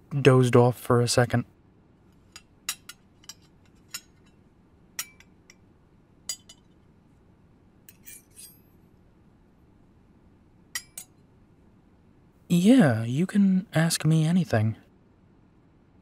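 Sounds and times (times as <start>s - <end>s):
spoon clinking against dishes: 5.0s - 5.6s, 6.3s - 6.7s.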